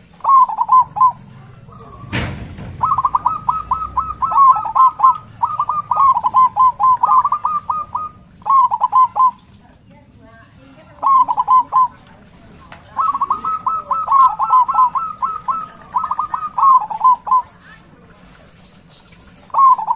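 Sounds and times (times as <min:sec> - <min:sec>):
dove cooing: 0:00.0 - 0:09.6, 0:10.8 - 0:19.9
sharp knock: 0:02.1 - 0:03.1.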